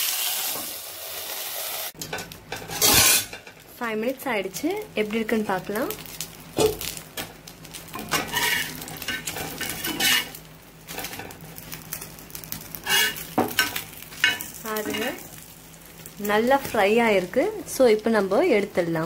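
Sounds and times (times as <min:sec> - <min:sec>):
fish sizzling in oil: 0:00.0 - 0:19.0
metal spatula scraping a pan: 0:02.5 - 0:03.5, 0:08.0 - 0:11.4, 0:12.8 - 0:15.2.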